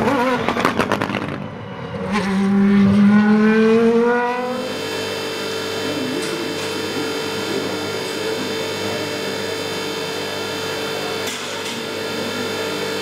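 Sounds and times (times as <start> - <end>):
engine backfire cracks: 0.0 - 1.5
race car engine revving: 0.0 - 13.0.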